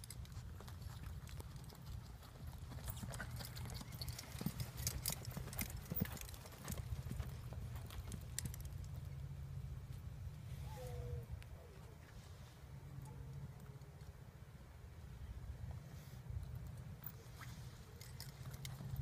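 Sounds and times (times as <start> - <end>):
horse hooves on dirt: 0.0 - 10.4.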